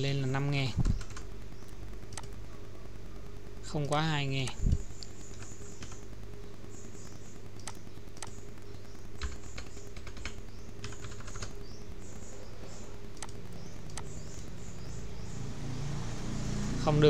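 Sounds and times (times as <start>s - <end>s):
steady low hum: 0.0s - 17.0s
computer keyboard typing: 0.6s - 2.4s, 3.9s - 6.1s, 7.0s - 14.3s.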